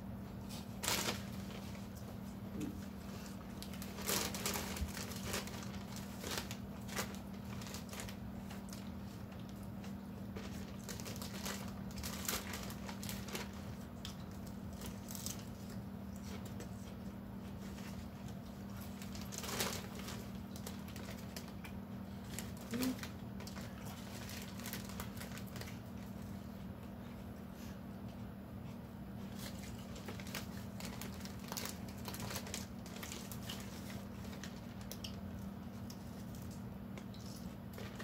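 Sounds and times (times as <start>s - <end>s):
plastic bag crinkling: 0.5s - 2.2s, 2.8s - 26.2s, 29.2s - 38.0s.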